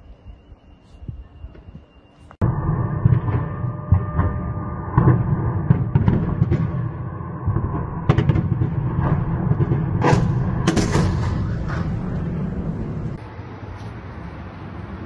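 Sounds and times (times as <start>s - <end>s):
constant low rumble: 0.0s - 15.0s
distant explosions echoing: 2.4s - 13.2s.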